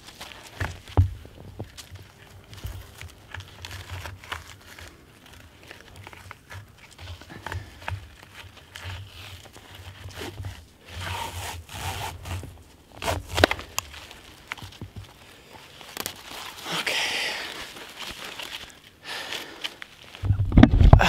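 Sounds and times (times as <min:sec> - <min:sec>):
handling clicks and rubbing: 0:00.0 - 0:16.7
jacket fabric rustling: 0:00.0 - 0:20.9.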